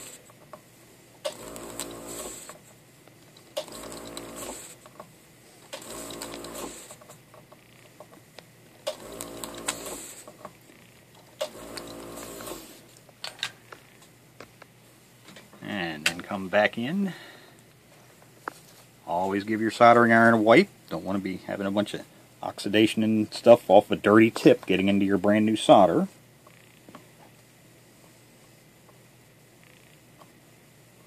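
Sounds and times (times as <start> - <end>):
vacuum pump bursts: 1.2 - 2.6, 3.6 - 4.8, 5.7 - 7.0, 8.8 - 10.3, 11.4 - 12.8.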